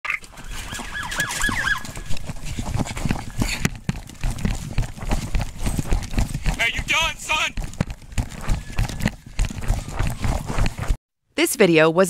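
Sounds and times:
heavy running footsteps: 0:00.2 - 0:11.0
police siren yelping: 0:00.5 - 0:02.0
body camera thumping: 0:01.4 - 0:11.0.

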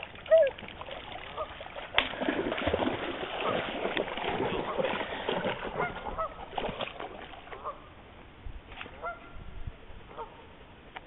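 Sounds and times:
dogs splashing in water: 0:00.0 - 0:07.8.

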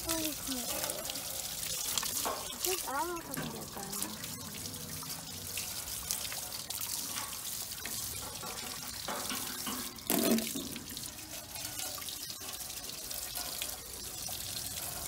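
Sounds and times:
garden hose spraying water: 0:00.0 - 0:15.0.

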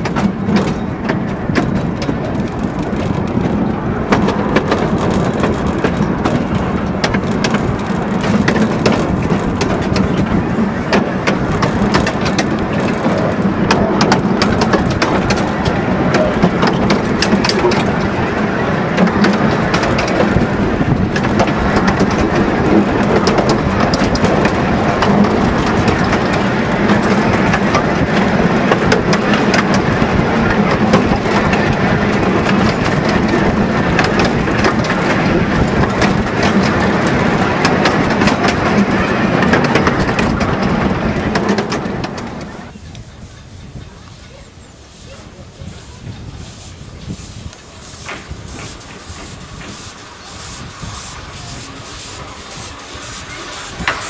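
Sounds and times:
sharp clicks of wheels: 0:00.0 - 0:18.2
train wheels rumbling on track: 0:00.0 - 0:54.0
wind on microphone: 0:00.0 - 0:54.0.

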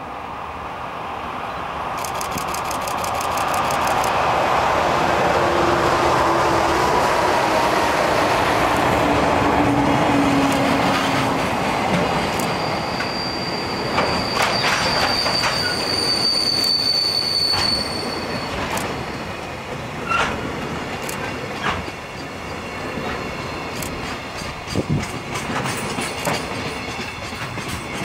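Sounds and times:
train wheels rumbling on rail: 0:01.6 - 0:28.0
wheels clicking over rail joints: 0:02.0 - 0:04.2, 0:23.0 - 0:28.0
high wheel squeal: 0:12.2 - 0:20.4.

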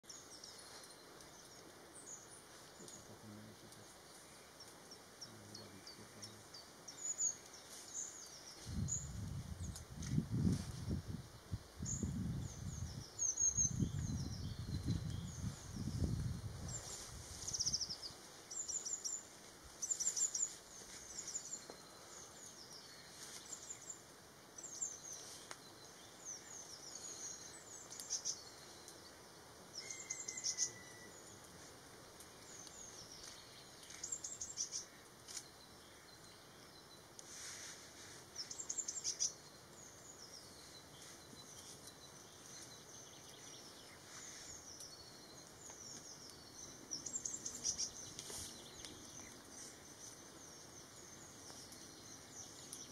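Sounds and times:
small birds chirping: 0:00.0 - 0:52.9
faint steady hiss: 0:00.1 - 0:52.9.

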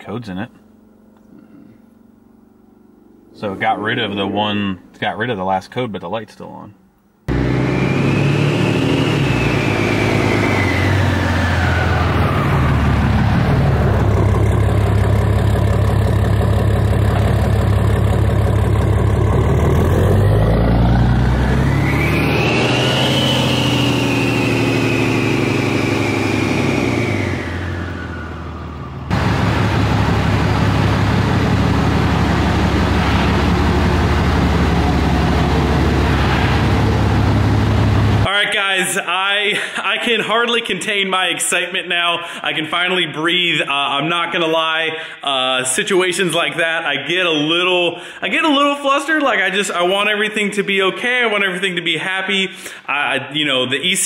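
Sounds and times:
high whine: 0:00.0 - 0:05.6, 0:06.8 - 0:41.4
diesel truck engine running: 0:07.3 - 0:38.3.

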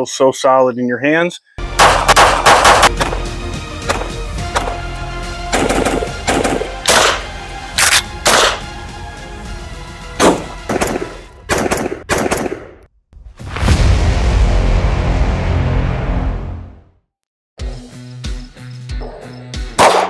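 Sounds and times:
intro music with low drone: 0:01.6 - 0:10.2
gunshots: 0:01.8 - 0:03.2, 0:05.5 - 0:08.7, 0:10.2 - 0:12.8, 0:19.8 - 0:20.0.

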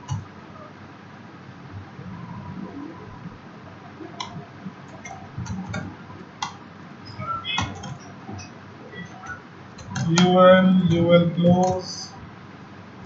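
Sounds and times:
computer keyboard keystrokes: 0:00.0 - 0:00.3, 0:04.2 - 0:06.6, 0:07.6 - 0:11.9.

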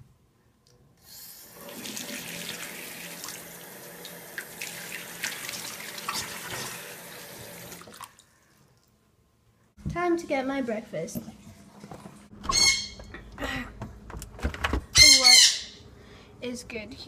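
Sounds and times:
faucet running into sink: 0:01.3 - 0:08.2.

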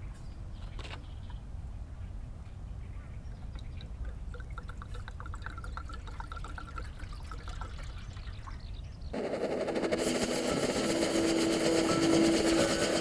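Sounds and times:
water pouring into metal kettle: 0:03.5 - 0:08.4.

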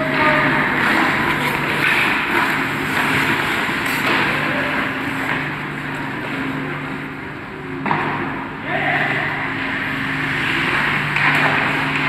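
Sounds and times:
skates scraping on ice: 0:00.0 - 0:06.5
steady low hum: 0:00.0 - 0:12.0.

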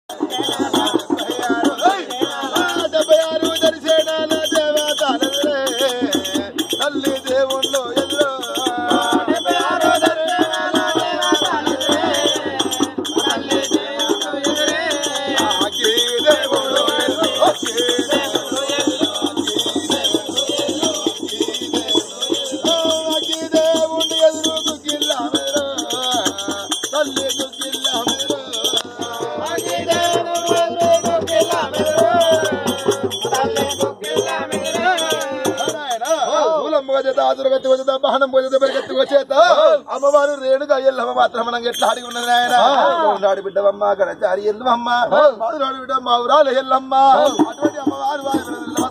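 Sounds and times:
hand drum: 0:00.1 - 0:36.0
ankle bells jingling: 0:00.1 - 0:37.4, 0:39.9 - 0:43.5, 0:47.0 - 0:48.9
man singing: 0:00.1 - 0:48.9.

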